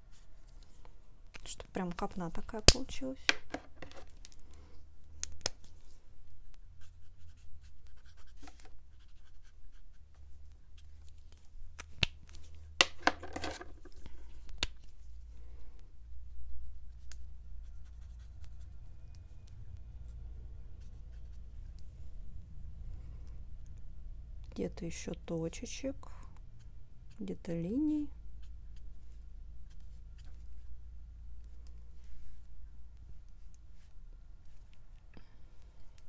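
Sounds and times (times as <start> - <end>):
low steady hum: 0.0 - 36.0
marker rubbing on paper: 6.8 - 10.1.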